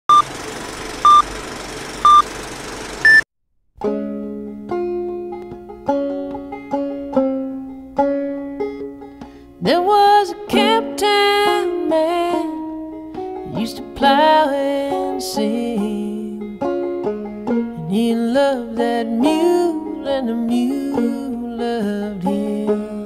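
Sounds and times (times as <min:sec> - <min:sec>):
banjo picking: 0:03.8 - 0:23.0
person singing: 0:09.6 - 0:12.6, 0:13.5 - 0:16.6, 0:17.8 - 0:23.0.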